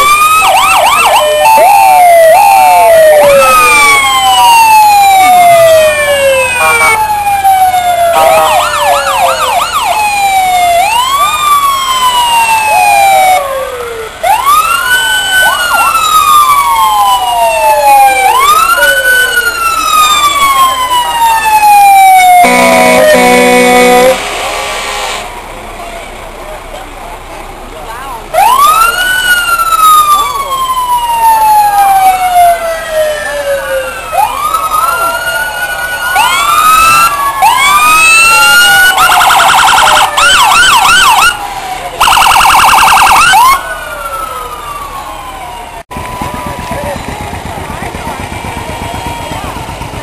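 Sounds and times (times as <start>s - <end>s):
siren yelp: 0.0s - 24.2s, 28.3s - 47.2s
fire truck sirens wailing: 0.0s - 50.0s
horn blast: 22.1s - 25.5s.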